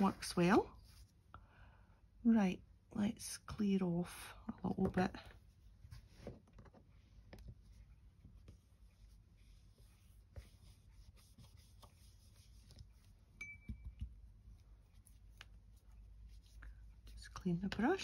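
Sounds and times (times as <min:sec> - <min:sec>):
faint ringing note: 0:13.4 - 0:14.0.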